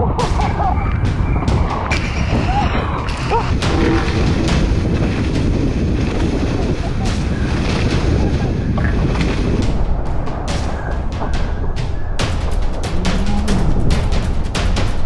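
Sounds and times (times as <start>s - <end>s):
wind rumble on microphone: 0.0s - 15.0s
water rushing and spraying: 2.0s - 15.0s.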